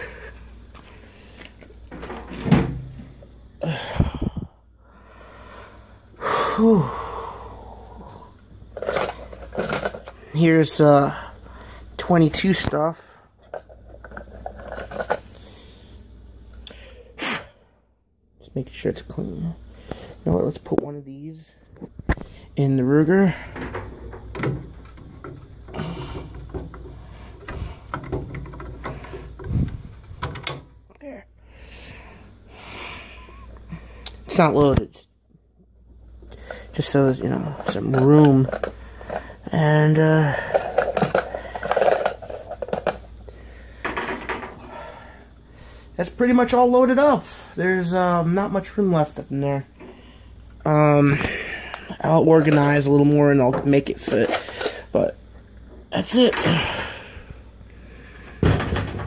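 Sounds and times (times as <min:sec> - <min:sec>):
rifle and items handled in cabinet: 0:00.6 - 0:03.4, 0:08.6 - 0:10.9, 0:12.0 - 0:15.6, 0:21.6 - 0:30.8, 0:36.3 - 0:44.6, 0:46.2 - 0:57.0
man groaning and sighing: 0:03.6 - 0:04.6, 0:06.2 - 0:08.3.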